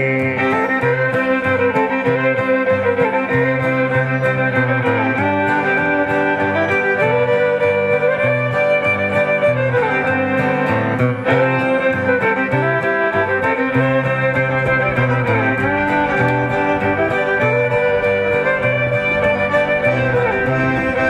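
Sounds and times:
bowed fiddle melody: 0.0s - 21.0s
strummed acoustic guitar: 0.0s - 21.0s
low bass notes: 10.9s - 21.0s.

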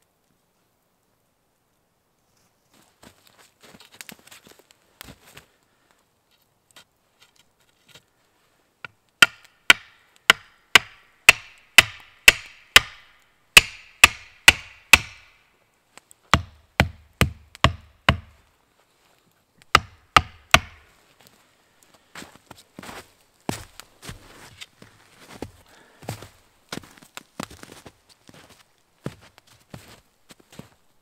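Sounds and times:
axe chopping wood: 9.2s - 15.4s, 16.3s - 18.4s, 19.7s - 20.8s.

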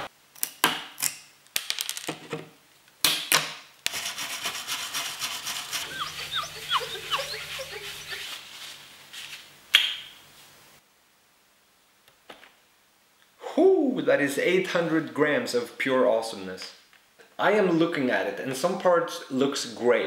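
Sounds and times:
rasping with squeaks: 4.4s - 8.5s.

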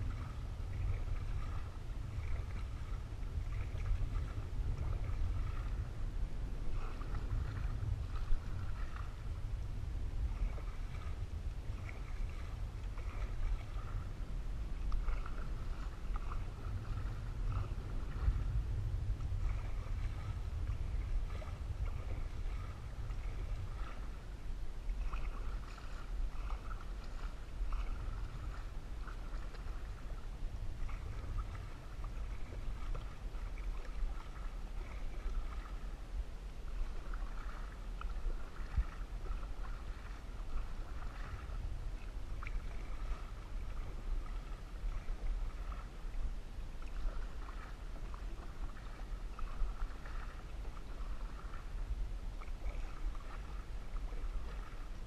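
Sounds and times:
water splashing and dripping: 0.0s - 5.8s, 6.7s - 9.2s, 24.9s - 30.2s, 30.8s - 35.8s, 36.8s - 45.9s, 46.8s - 51.7s, 52.4s - 54.8s
paddle pulling through water: 0.0s - 55.0s
steady low rumble: 0.0s - 55.0s
water washing along hull: 0.0s - 55.0s.

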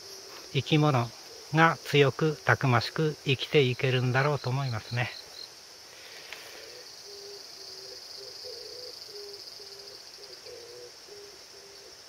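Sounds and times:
bird hooting: 0.0s - 1.9s, 6.5s - 12.0s
insects shrilling: 0.0s - 12.0s.

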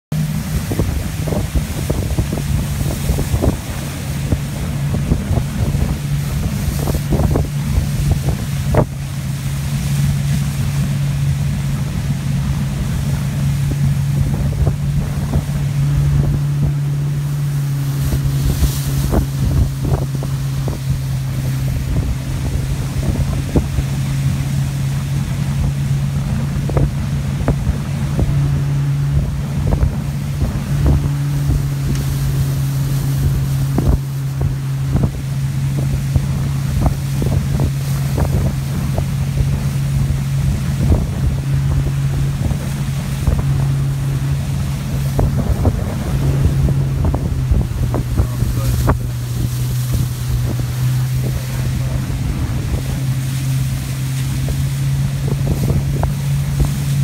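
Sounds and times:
motorboat engine running: 0.0s - 57.0s
wind buffeting microphone: 0.1s - 57.0s.

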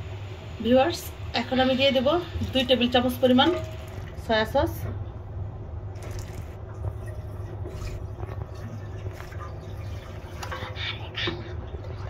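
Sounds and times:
low steady hum: 0.0s - 12.0s
liquid pouring into pot: 3.4s - 4.3s, 6.0s - 10.8s
soup bubbling: 6.0s - 10.9s.

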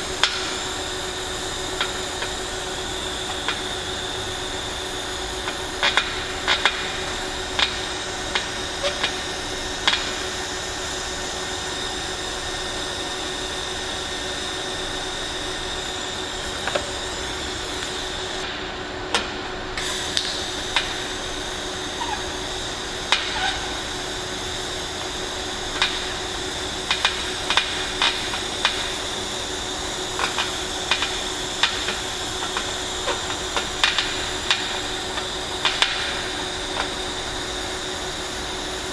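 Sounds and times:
welding arc hiss and hum: 0.0s - 38.9s.

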